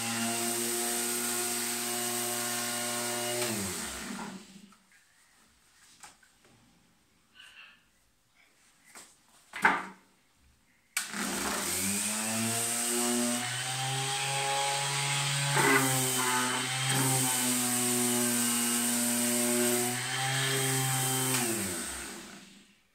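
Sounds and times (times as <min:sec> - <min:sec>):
orbital sander buzzing: 0:11.1 - 0:22.5.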